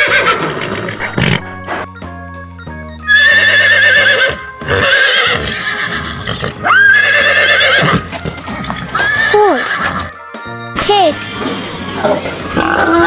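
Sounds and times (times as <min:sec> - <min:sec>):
horses whinnying: 0:00.0 - 0:01.5, 0:03.1 - 0:10.2, 0:12.5 - 0:13.0.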